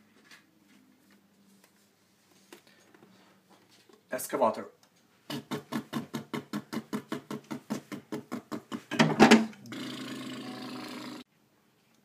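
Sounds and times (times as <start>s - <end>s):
person imitating engine with mouth: 5.3s - 11.3s.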